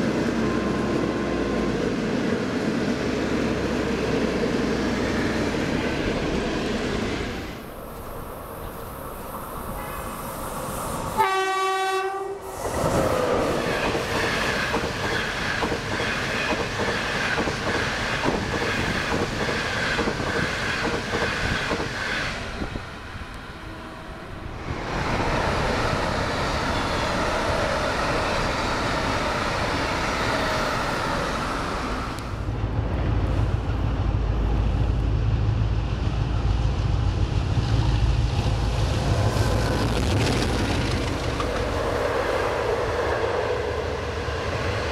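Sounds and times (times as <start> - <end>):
diesel locomotive engine rumble: 0.0 - 44.9
train horn: 9.7 - 10.2, 11.2 - 12.5
train wheels clicking over rail joints: 12.6 - 22.8.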